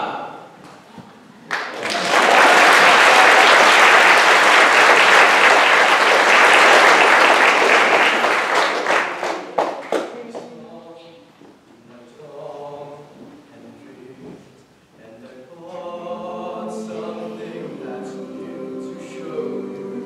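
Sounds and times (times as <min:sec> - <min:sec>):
audience applauding: 0:01.5 - 0:10.4.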